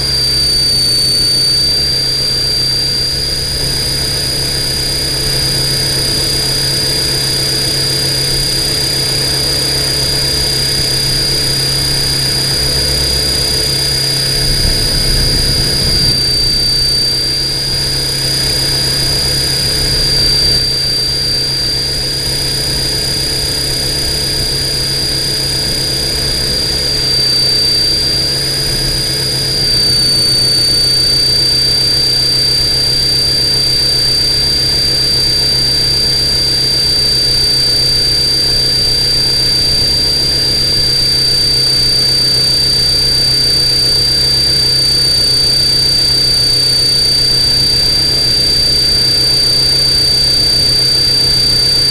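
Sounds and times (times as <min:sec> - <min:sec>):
drone motors and propellers whining: 0:00.0 - 0:51.9.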